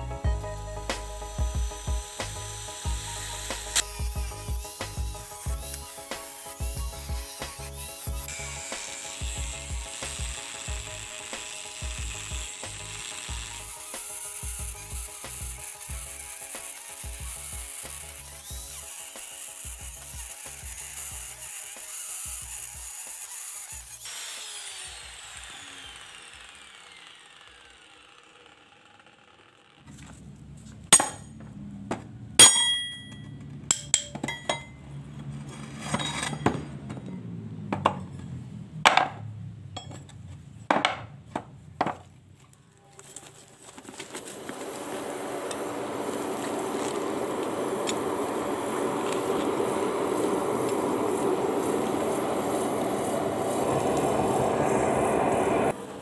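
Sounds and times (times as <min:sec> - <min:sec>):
power tool whine winding down: 0:00.0 - 0:29.9, 0:44.0 - 0:56.0
steady motor noise: 0:00.0 - 0:30.6, 0:44.2 - 0:56.0
metal clinks and knocks: 0:32.4 - 0:34.8
low hum: 0:45.0 - 0:55.7.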